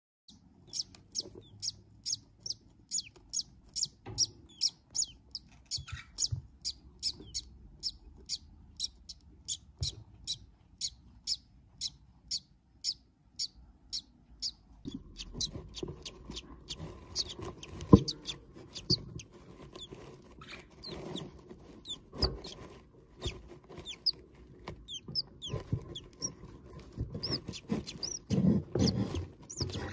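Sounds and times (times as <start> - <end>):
chick peeping: 0.3 - 29.9
rustling: 14.9 - 29.9.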